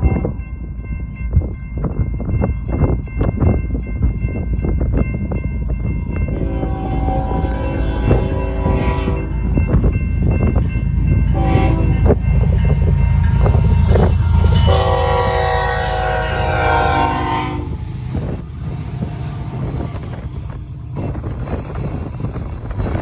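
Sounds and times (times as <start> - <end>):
locomotive engine rumble: 0.0 - 23.0
train wheels rolling past: 5.1 - 23.0
locomotive air horn blasts: 6.3 - 9.4, 11.3 - 12.2, 13.3 - 18.2.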